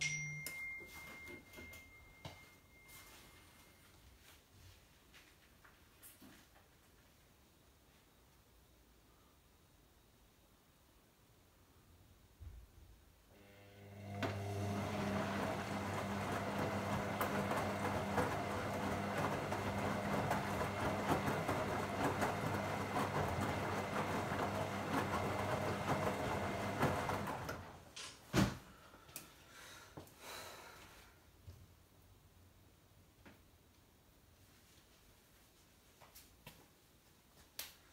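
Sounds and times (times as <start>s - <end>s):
washing machine motor humming: 13.4s - 27.9s.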